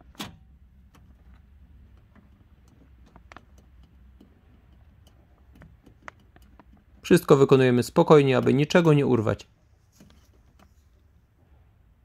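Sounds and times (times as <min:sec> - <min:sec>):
low steady hum: 0:00.0 - 0:12.0
small plastic clicks and ticks: 0:00.2 - 0:07.3.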